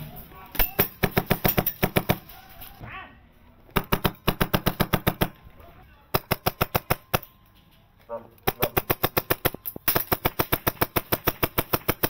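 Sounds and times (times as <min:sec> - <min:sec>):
airsoft rifle firing full-auto bursts: 0:03.8 - 0:05.4, 0:08.5 - 0:12.0.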